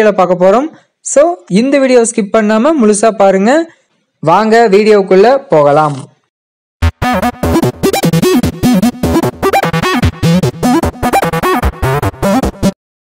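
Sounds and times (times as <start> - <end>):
choppy synthesizer music: 6.8 - 12.8.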